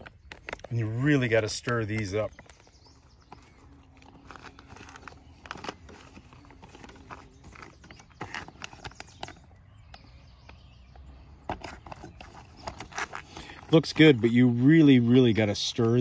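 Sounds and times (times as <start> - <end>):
spoon stirring in crinkly pouch: 2.0 - 9.4.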